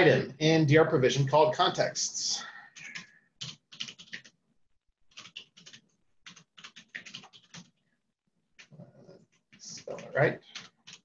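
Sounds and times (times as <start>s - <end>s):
typing on computer keyboard: 2.8s - 4.4s, 5.1s - 7.8s, 8.6s - 11.0s.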